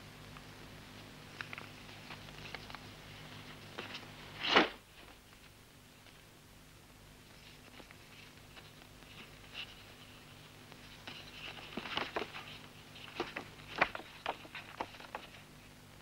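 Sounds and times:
paper rustling: 0:01.4 - 0:06.2, 0:07.3 - 0:15.6.

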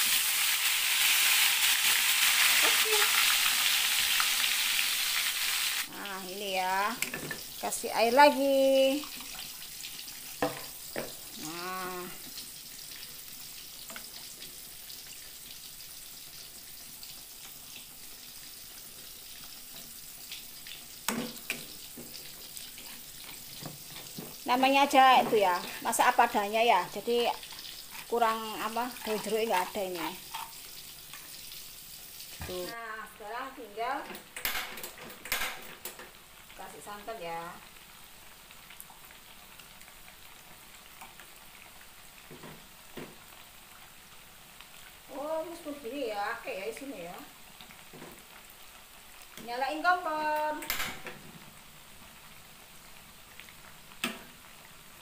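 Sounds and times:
frying hiss: 0:00.0 - 0:55.0
metal spoon stirring in a pot: 0:21.1 - 0:31.4
metal ladle stirring in pot: 0:27.4 - 0:30.6.

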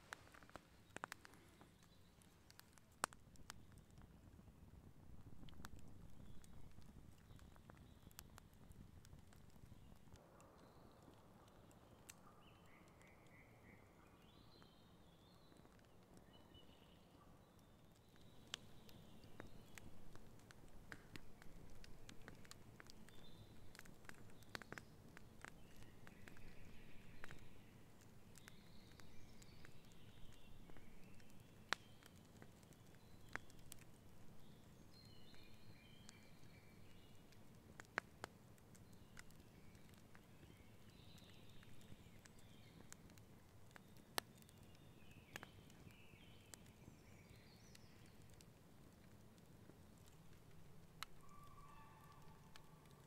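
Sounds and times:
campfire crackling and popping: 0:00.0 - 0:53.0
birds chirping: 0:21.1 - 0:33.6, 0:38.8 - 0:43.0.

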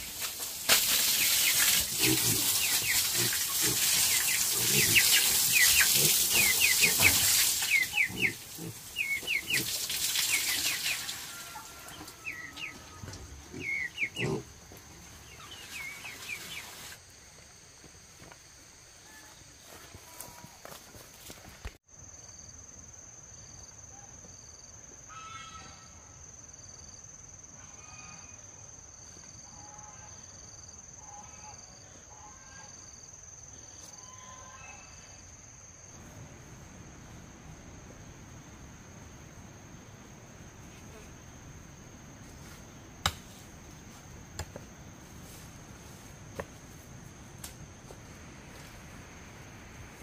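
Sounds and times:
insects shrilling: 0:00.0 - 0:12.7
rustling undergrowth: 0:00.0 - 0:17.1
short chirping calls: 0:01.1 - 0:11.0.

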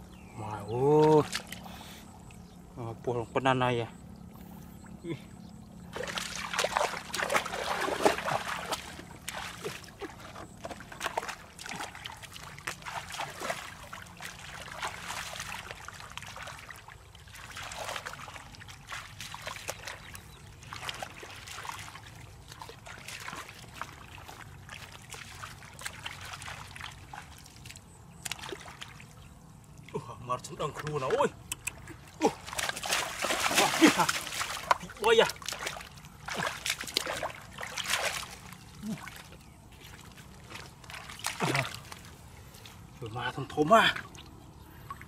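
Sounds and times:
hands splashing in muddy water: 0:05.9 - 0:29.1, 0:30.7 - 0:42.9.

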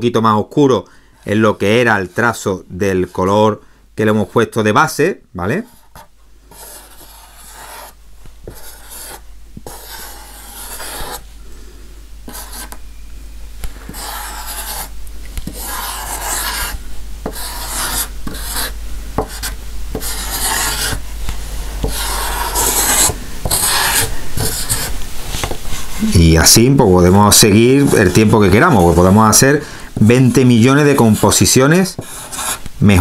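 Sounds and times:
marker scratching on surface: 0:05.7 - 0:11.2, 0:12.3 - 0:12.8, 0:13.9 - 0:21.0, 0:21.8 - 0:25.0, 0:32.0 - 0:32.7.

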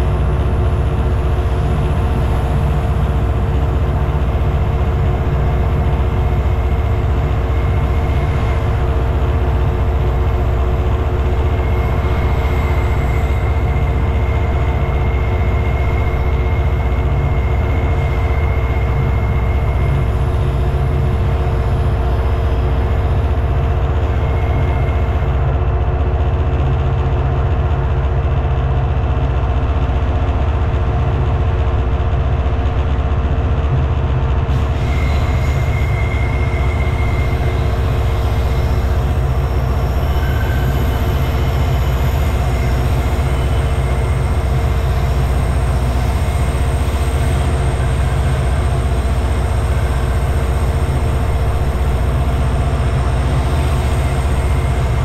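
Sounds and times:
diesel locomotive engine droning: 0:00.0 - 0:55.0
faint high whine: 0:34.7 - 0:55.0.

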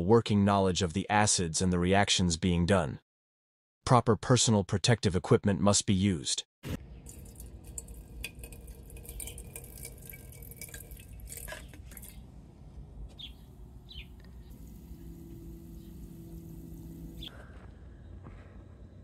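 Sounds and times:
small glassy clicks: 0:07.0 - 0:12.2
water pouring into glass beaker: 0:07.0 - 0:12.2
low steady hum: 0:07.0 - 0:19.0.

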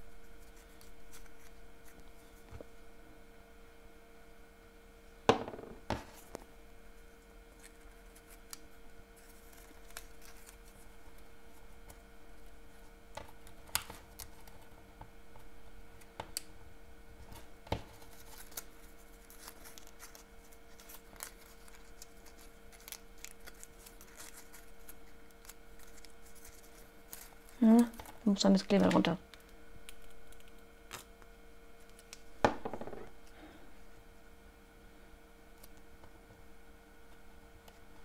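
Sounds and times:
faint hum: 0:00.0 - 0:38.0
paper rustling: 0:09.2 - 0:11.3, 0:17.9 - 0:28.2.

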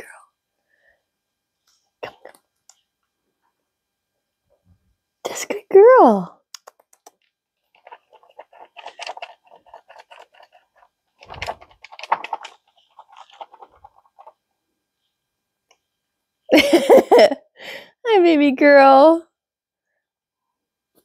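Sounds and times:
notebook rustling and clicking: 0:07.8 - 0:14.4.

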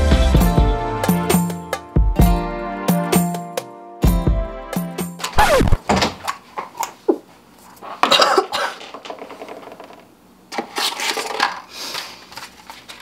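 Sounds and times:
woman coughing: 0:08.0 - 0:08.8.

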